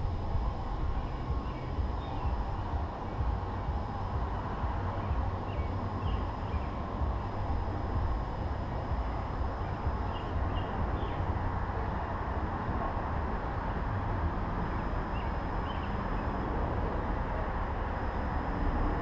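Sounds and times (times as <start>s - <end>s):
low outdoor rumble and hiss: 0.0s - 19.0s
faint bird chirps: 5.4s - 6.8s, 15.0s - 16.2s.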